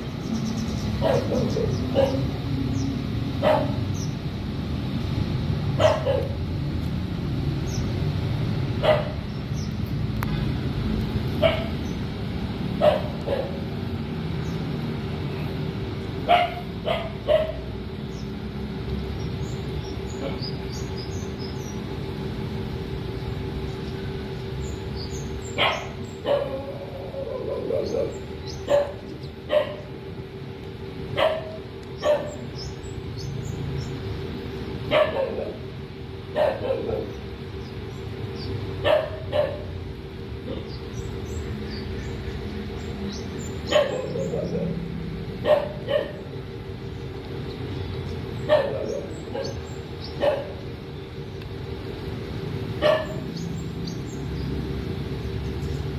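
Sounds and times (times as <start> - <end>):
steady low hum: 0.0 - 55.9
dog barking: 1.0 - 2.3, 3.4 - 3.8, 5.8 - 6.4, 8.8 - 9.2, 11.4 - 11.8, 12.8 - 13.6, 16.3 - 17.6, 25.6 - 29.8, 31.2 - 32.4, 34.9 - 35.6, 36.3 - 37.2, 38.8 - 39.7, 43.7 - 44.8, 45.4 - 46.2, 48.5 - 49.6, 50.2 - 50.6, 52.8 - 53.2.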